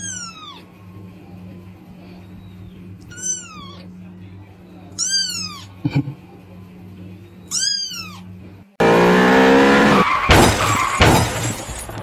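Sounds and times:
kitten meowing: 0.0s - 0.6s, 3.1s - 3.9s, 5.0s - 5.7s, 7.5s - 8.2s.

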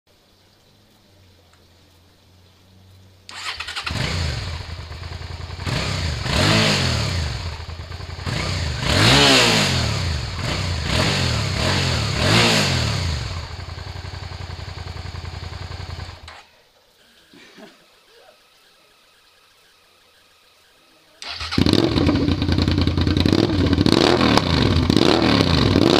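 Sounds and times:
motorcycle engine revving: 3.3s - 16.4s, 21.2s - 25.9s.

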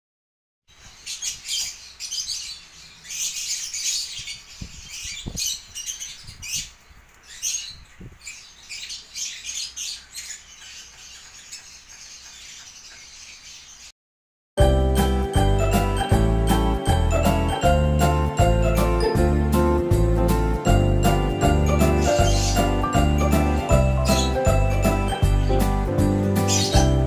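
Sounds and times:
small birds chirping: 0.7s - 14.0s, 20.8s - 27.0s.

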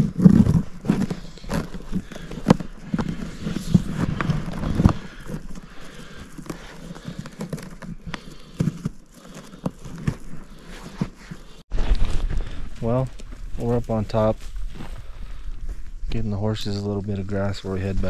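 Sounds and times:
pack saddle rattling and knocking: 0.0s - 11.6s.

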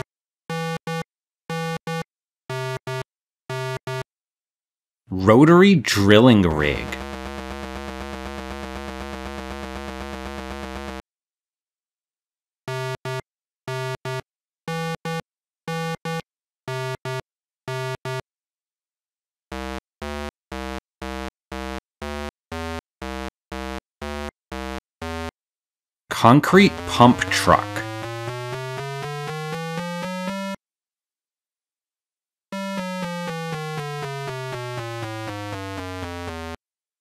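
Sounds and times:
steady electronic buzz: 6.8s - 11.0s.

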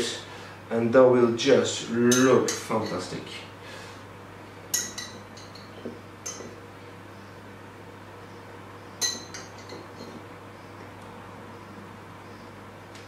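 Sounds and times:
fork clinking glass jar: 4.7s - 6.5s, 9.0s - 10.2s.

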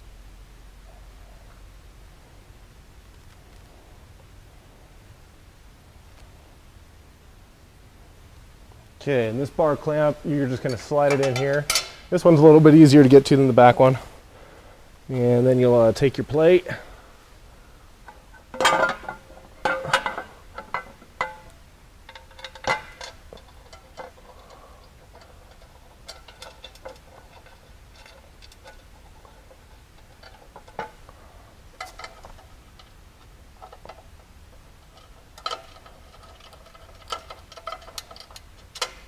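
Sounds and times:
metal plate clanking against frame: 9.8s - 12.1s, 18.5s - 21.5s, 22.1s - 31.0s
small metal clicks: 31.8s - 39.0s.

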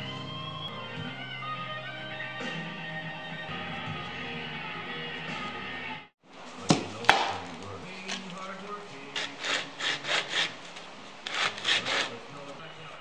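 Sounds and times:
guitar music: 0.0s - 6.1s
wood sanding strokes: 7.8s - 12.5s.

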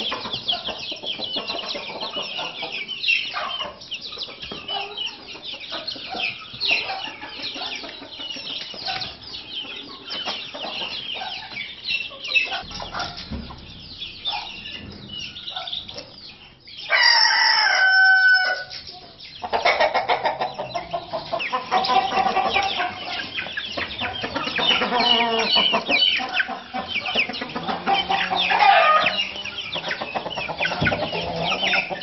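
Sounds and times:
chickens cheeping and clucking: 0.0s - 32.0s
rooster crowing: 16.9s - 18.7s.

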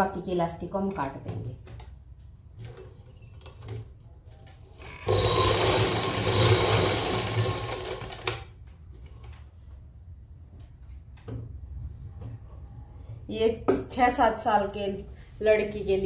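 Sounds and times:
sewing machine running: 4.9s - 8.5s.

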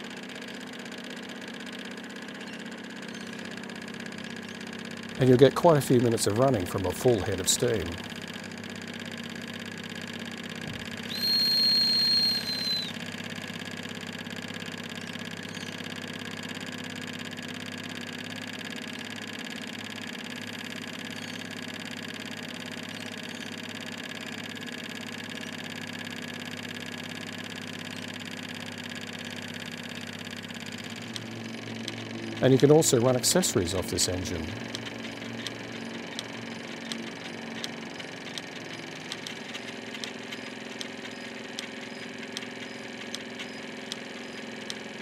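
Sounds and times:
model steam engine humming: 0.0s - 45.0s
high steam whistle: 11.1s - 13.0s.

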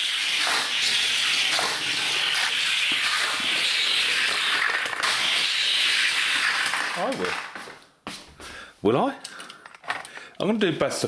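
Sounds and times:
toy cars rolling on plastic track: 0.0s - 7.6s.

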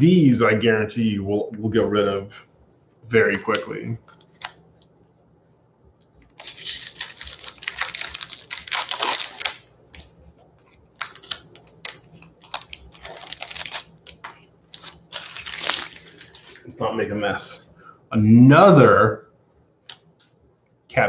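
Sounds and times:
wrapper tearing open: 6.3s - 16.6s
foil wrapper crinkling: 6.3s - 16.7s.

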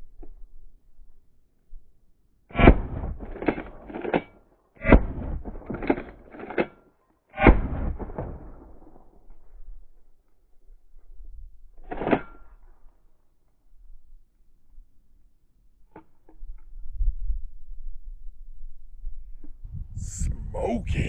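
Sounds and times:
shotgun shots: 2.5s - 4.1s, 4.8s - 6.0s, 7.4s - 8.8s.

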